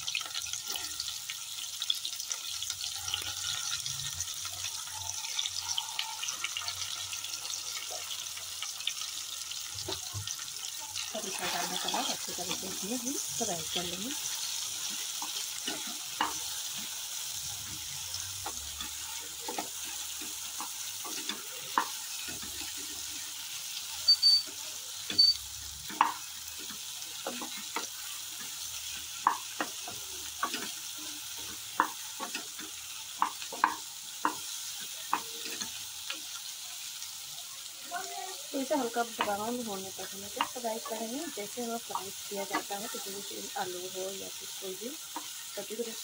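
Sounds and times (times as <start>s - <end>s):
food sizzling in hot oil: 0.0s - 46.0s
spatula knocking and scraping pan: 9.6s - 23.4s, 25.0s - 36.4s, 39.0s - 43.1s.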